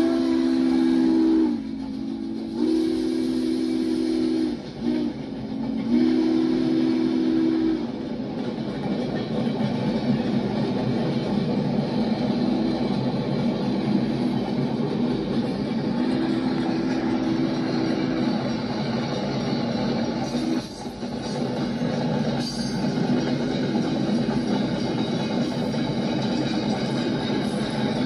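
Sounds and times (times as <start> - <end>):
steam locomotive chime whistle: 0.0 - 8.0, 15.8 - 21.6
train cars rumbling past: 0.0 - 28.0
wheels clattering on rail joints: 7.9 - 28.0.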